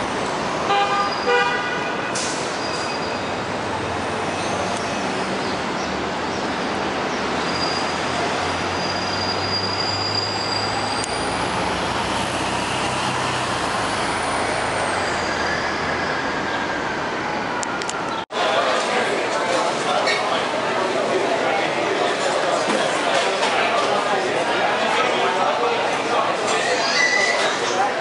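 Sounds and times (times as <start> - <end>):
heavy vehicle engines humming: 0.0 - 26.6
street traffic noise: 0.0 - 28.0
thin high squeal: 8.8 - 11.3.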